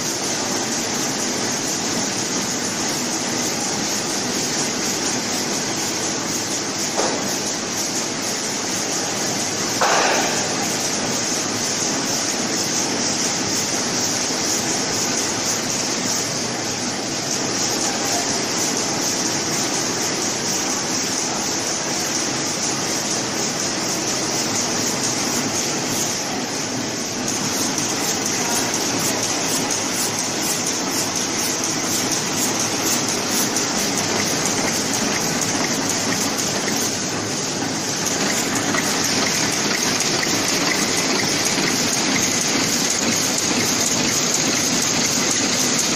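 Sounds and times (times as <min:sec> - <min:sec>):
packaging machine hissing: 0:00.0 - 0:45.9
machine knock: 0:06.9 - 0:07.5, 0:09.8 - 0:11.0.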